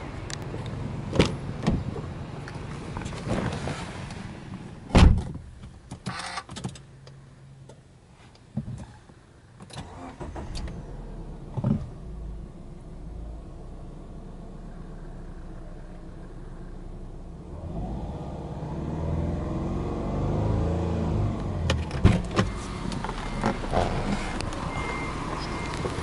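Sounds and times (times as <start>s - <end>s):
car door shutting: 4.9s - 6.5s, 21.6s - 26.0s
car engine starting and idling: 8.8s - 26.0s.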